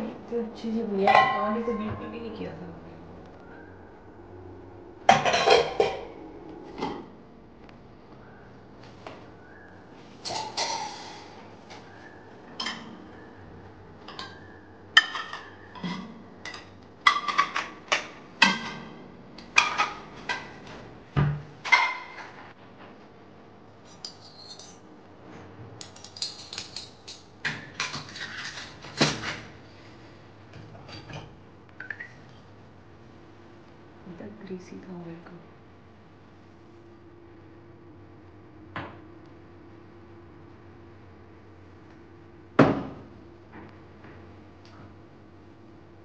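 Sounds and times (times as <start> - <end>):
metal pots and pans clanking: 1.0 - 2.0, 5.1 - 6.1, 10.2 - 11.3, 12.6 - 13.0, 15.0 - 18.9, 19.6 - 20.6.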